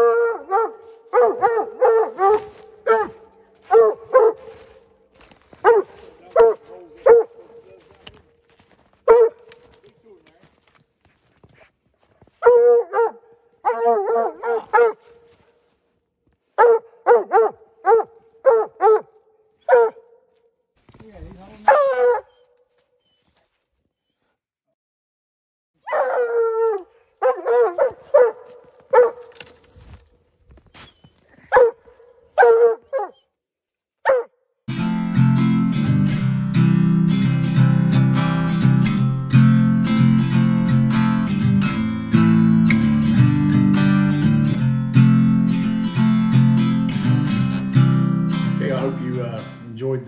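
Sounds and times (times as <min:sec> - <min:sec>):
dog barking: 0:00.0 - 0:04.9, 0:05.5 - 0:07.8, 0:09.0 - 0:09.8, 0:12.4 - 0:15.4, 0:16.6 - 0:20.3, 0:21.6 - 0:22.4, 0:25.8 - 0:29.4, 0:31.5 - 0:33.3, 0:34.0 - 0:34.4
acoustic guitar strumming: 0:34.7 - 0:49.8.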